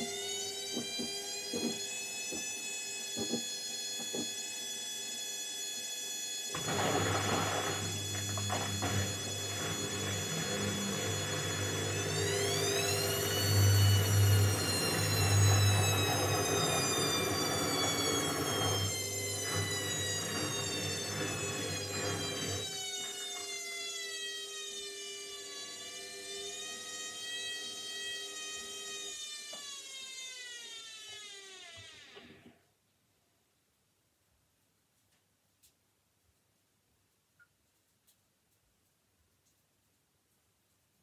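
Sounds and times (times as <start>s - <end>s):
washing machine motor whine: 0.0s - 32.5s.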